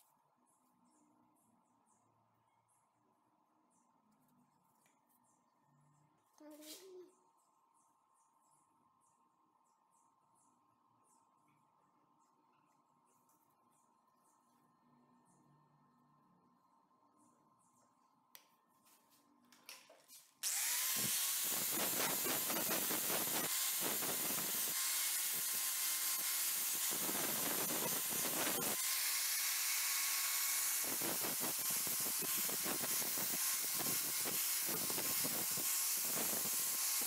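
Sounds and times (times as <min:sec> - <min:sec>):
angle grinder motor whine: 0:20.4 - 0:37.0.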